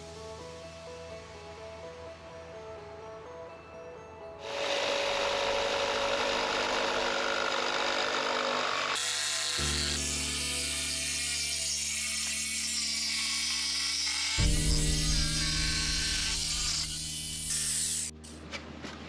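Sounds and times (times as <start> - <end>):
power tool working wood: 4.4 - 18.1.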